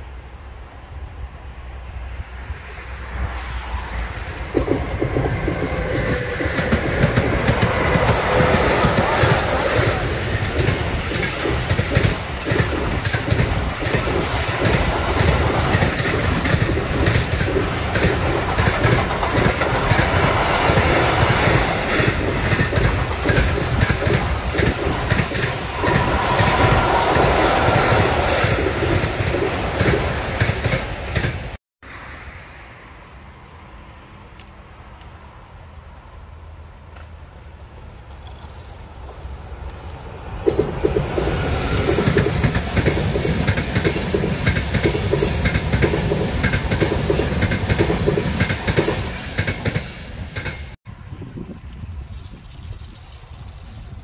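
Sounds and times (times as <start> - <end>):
freight train passing: 0.0 - 54.0
low rumble of approaching train: 0.0 - 54.0
wheels clattering on rails: 3.3 - 31.6, 39.7 - 50.8.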